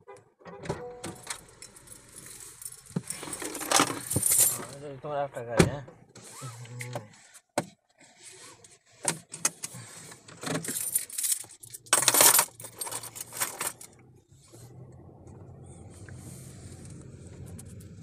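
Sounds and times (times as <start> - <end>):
clicks clinks and rustling: 10.6 - 13.9
car engine humming: 11.6 - 18.0.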